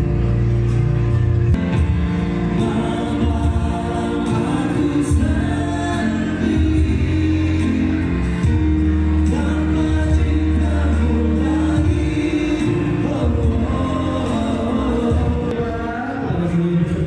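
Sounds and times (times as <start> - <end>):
amplified backing music: 0.0 - 17.0
woman and man singing duet: 2.6 - 8.1, 9.2 - 17.0.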